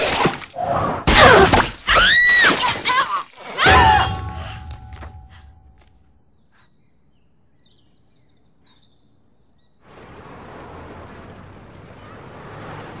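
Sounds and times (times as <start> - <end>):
cars driving past: 9.8 - 13.0.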